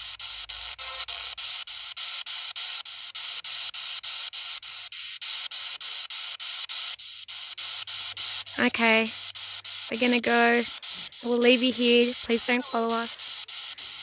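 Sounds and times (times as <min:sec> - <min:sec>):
choppy radio static hiss: 0:00.0 - 0:14.0.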